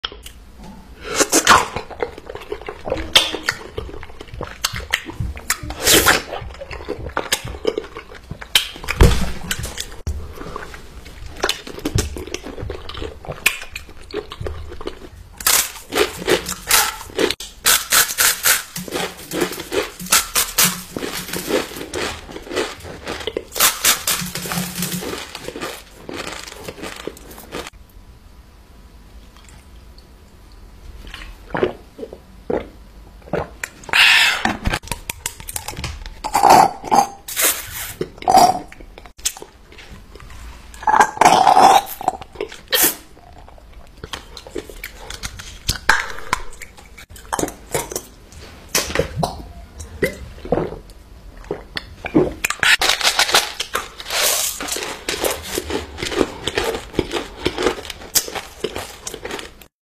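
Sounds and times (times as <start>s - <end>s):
person gulping and chewing: 0.1s - 17.7s, 18.8s - 27.8s, 29.3s - 37.3s, 38.0s - 48.3s, 48.9s - 52.8s, 54.6s - 59.7s
wrapper crackling: 15.4s - 27.7s, 52.8s - 59.5s
person burping: 36.2s - 37.2s, 40.8s - 42.2s.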